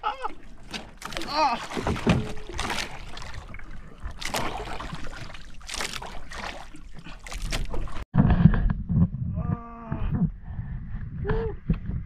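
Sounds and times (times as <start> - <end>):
water splashing against boat: 0.0 - 8.1.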